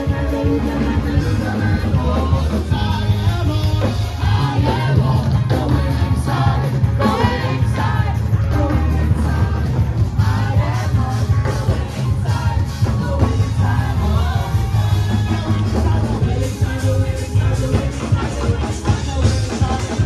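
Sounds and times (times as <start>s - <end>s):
electric guitar: 0.0s - 20.0s
heavy bass line: 0.0s - 20.0s
keyboard: 0.0s - 20.0s
singers on microphones: 0.0s - 20.0s.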